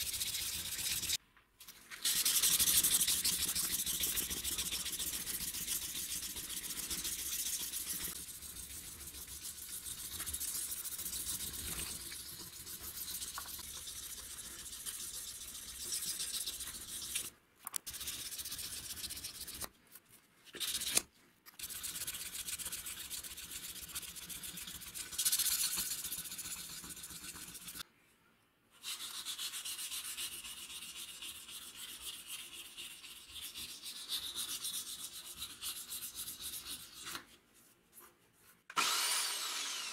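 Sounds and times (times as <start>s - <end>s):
sandpaper scratching on metal: 0.0s - 1.2s, 2.0s - 17.3s.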